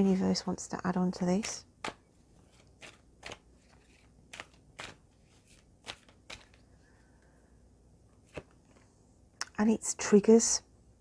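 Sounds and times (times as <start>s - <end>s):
cards being shuffled: 1.4s - 6.7s, 8.2s - 8.9s.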